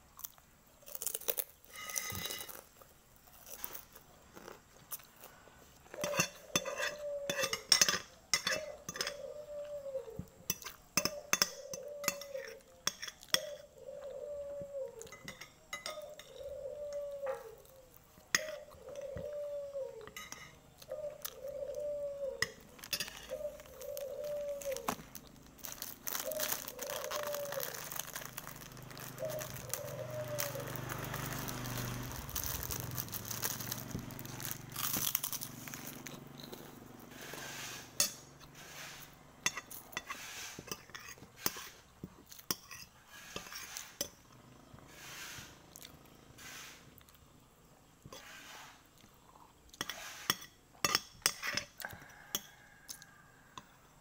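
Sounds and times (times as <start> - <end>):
metal spoon scraping glass plate: 1.7 - 2.6, 6.0 - 9.2, 20.1 - 20.6, 22.4 - 23.4, 37.2 - 41.8, 42.5 - 44.2, 49.8 - 51.7
plastic wrapper crinkling: 22.7 - 36.8.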